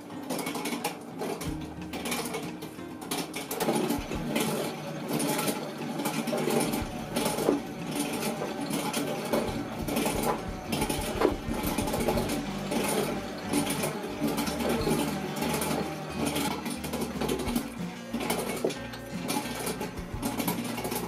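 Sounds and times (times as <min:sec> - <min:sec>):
treadle lathe clattering: 0:00.3 - 0:21.0.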